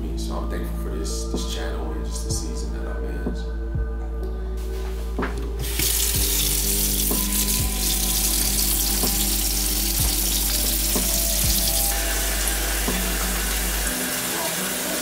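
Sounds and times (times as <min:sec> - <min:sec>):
water running from a tap: 0:05.6 - 0:15.0.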